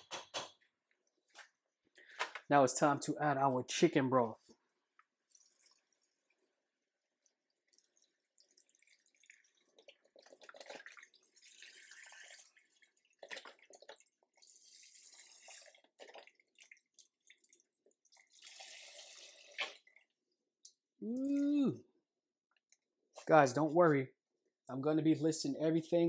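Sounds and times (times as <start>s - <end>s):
broth pouring into a pot: 5.2s - 20.9s.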